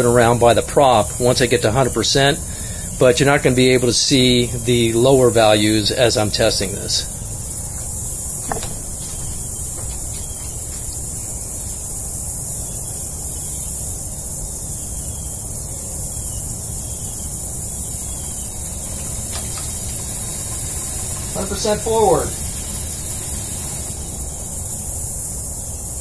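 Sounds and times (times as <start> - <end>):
electric motor high hiss: 4.2 - 26.0.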